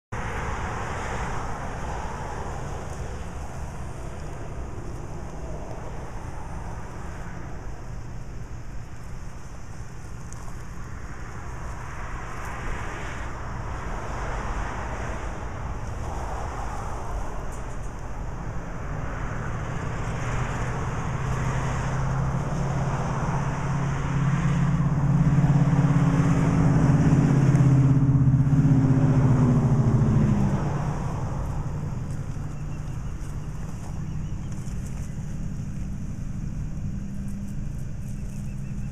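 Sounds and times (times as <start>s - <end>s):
traffic hum: 0.1s - 38.9s
engine running close by: 0.2s - 38.9s.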